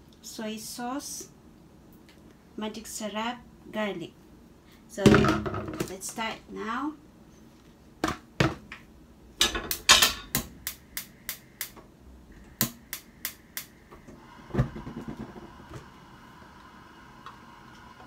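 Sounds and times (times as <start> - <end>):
gas hob igniter clicking: 12.5 - 13.8.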